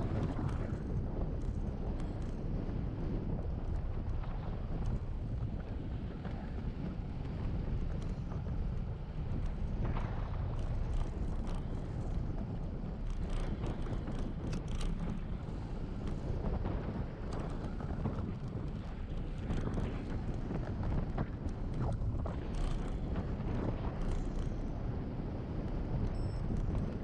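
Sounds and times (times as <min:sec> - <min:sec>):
wind buffeting microphone: 0:00.0 - 0:27.0
bike clicks and rattles: 0:00.1 - 0:02.6, 0:07.9 - 0:24.7.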